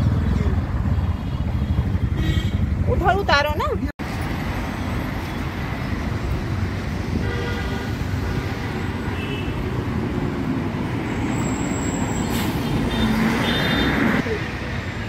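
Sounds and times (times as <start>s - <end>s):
road traffic rumble: 0.0s - 15.0s
vehicle horns: 7.1s - 9.7s, 11.7s - 14.2s.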